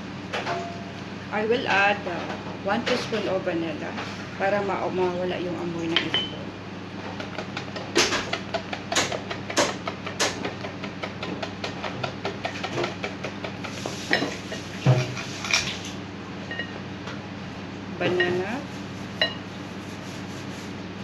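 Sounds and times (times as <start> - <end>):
whisk clinking in glass bowl: 19.2 - 19.5.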